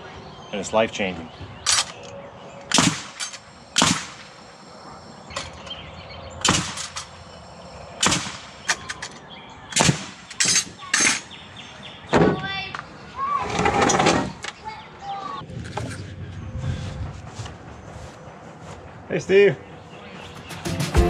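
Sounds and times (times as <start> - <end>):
nail gun firing into wood: 2.7 - 4.3, 6.4 - 7.1, 8.0 - 8.9, 9.8 - 10.7.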